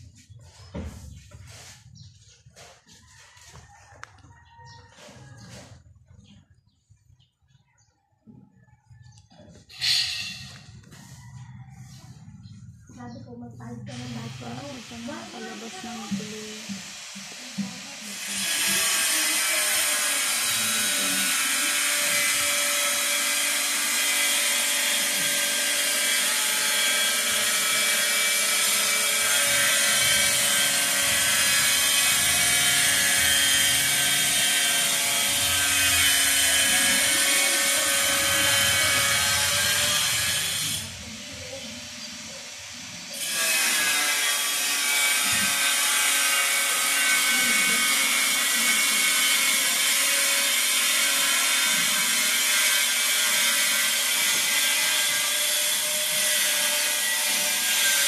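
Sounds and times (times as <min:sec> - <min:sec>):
power tool hissing and whining: 0:13.9 - 0:58.0.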